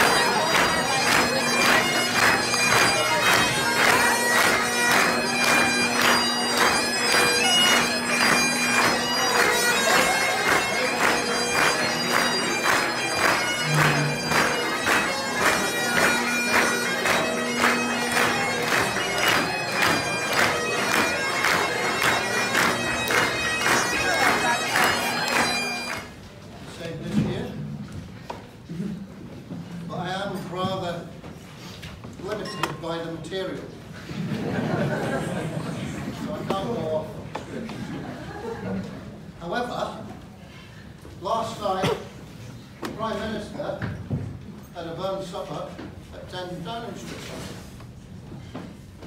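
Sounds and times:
audience clapping along: 0.0 - 26.2
bagpipes playing over a drone: 0.0 - 26.2.

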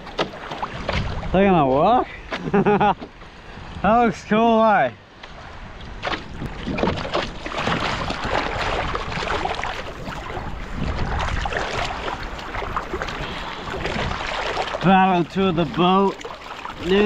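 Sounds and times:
hands paddling in water: 5.2 - 17.0
wash of water: 6.0 - 17.0.

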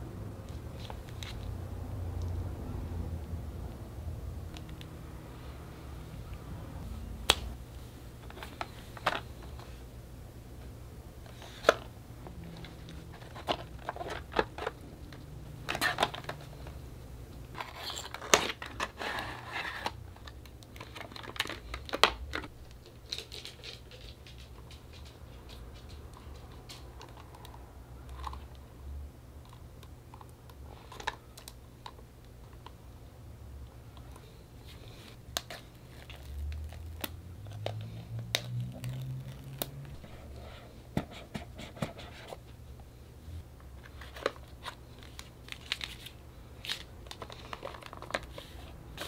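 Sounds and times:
packaging rustling slide: 17.6 - 22.3.

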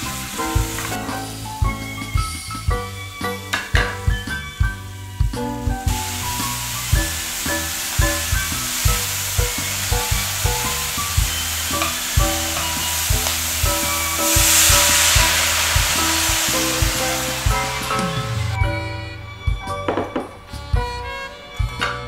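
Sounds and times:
cabbage sizzling in a hot pan: 0.0 - 1.6, 5.9 - 18.6
background music with steady beat: 0.0 - 22.0.

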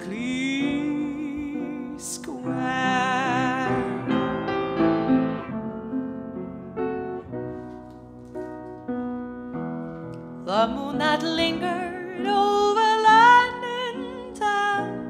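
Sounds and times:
woman singing with vibrato: 0.0 - 4.4, 10.5 - 15.0
upright piano chords: 0.0 - 15.0.

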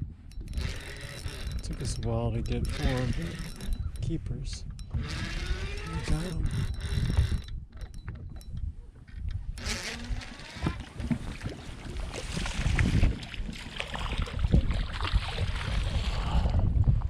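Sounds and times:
wind gusting on microphone: 0.0 - 17.0
handling knocks and clicks: 0.3 - 9.4
water lapping against boat: 8.9 - 17.0.

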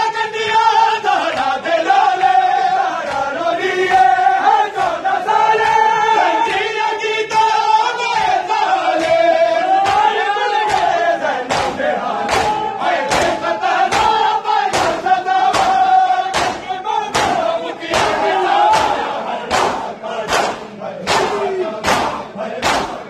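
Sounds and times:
crowd of men chanting: 0.0 - 23.0
hands slapping bare chests: 8.9 - 10.1, 10.7 - 23.0.

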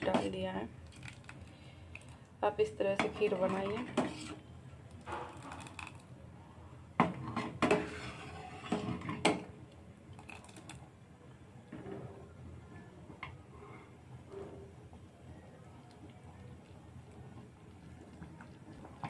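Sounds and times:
ladle scraping metal pot: 3.0 - 4.5, 7.2 - 9.2.

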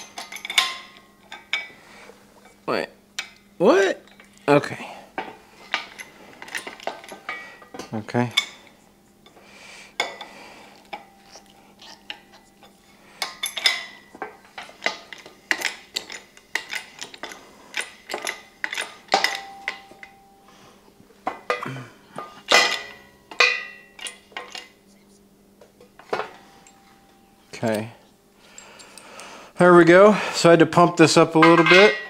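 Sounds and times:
metal clanks from hydraulic jack: 13.2 - 20.2, 21.3 - 24.7, 31.4 - 32.0.

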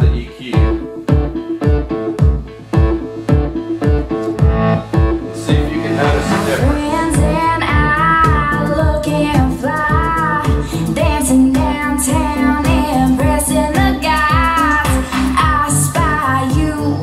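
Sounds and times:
pop song with female vocal: 5.5 - 17.0.

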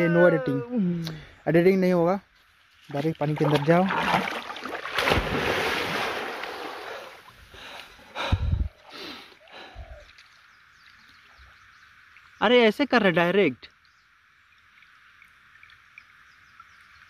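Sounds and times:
water splashing and churning: 2.9 - 8.2.

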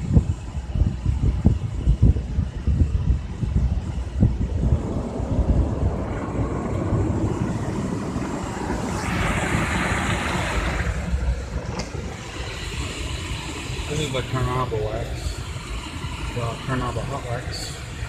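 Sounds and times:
car wash rumbling: 0.0 - 18.0
hissing water spray: 4.5 - 18.0.

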